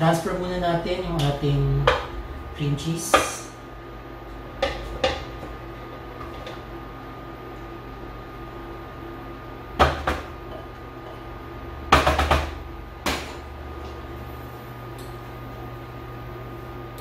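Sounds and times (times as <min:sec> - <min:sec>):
spatula knocking mixing bowl: 0:01.8 - 0:02.2.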